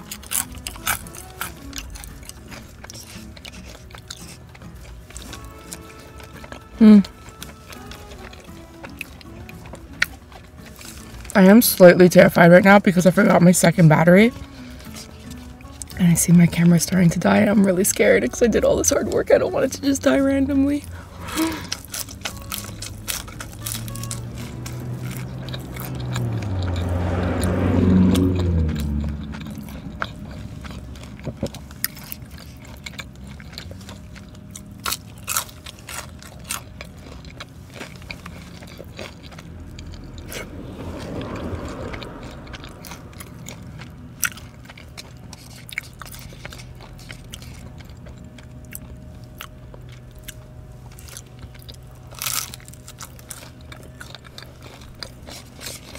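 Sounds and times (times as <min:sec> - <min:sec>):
crunchy biting and chewing: 0:00.0 - 0:17.4, 0:20.6 - 0:55.9
low rumble: 0:19.8 - 0:35.2, 0:36.2 - 0:55.9.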